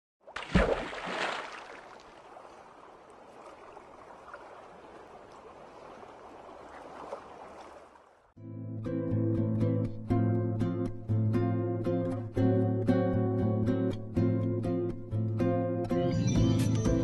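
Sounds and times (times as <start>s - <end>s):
water splash rush: 0.2s - 8.0s
plucked guitar music: 8.4s - 17.0s.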